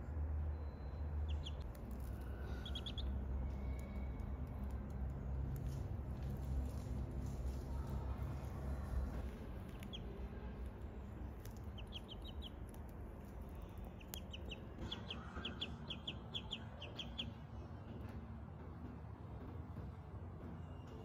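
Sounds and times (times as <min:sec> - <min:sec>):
ducklings peeping: 0:00.6 - 0:04.3, 0:08.8 - 0:17.4.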